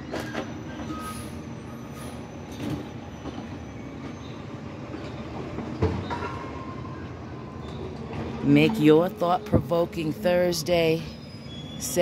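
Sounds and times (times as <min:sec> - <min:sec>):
distant traffic rumble: 0:02.6 - 0:12.0.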